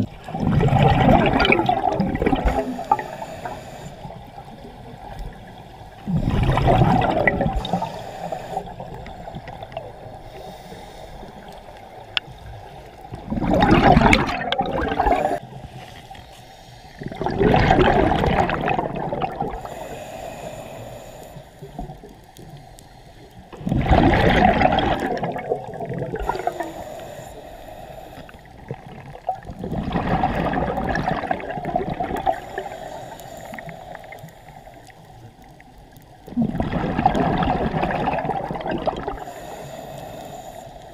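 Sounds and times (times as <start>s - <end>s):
diver exhaling bubbles underwater: 0.0s - 3.2s, 6.0s - 7.9s, 13.2s - 15.4s, 17.0s - 19.7s, 23.6s - 26.6s, 28.6s - 32.7s, 36.3s - 39.3s.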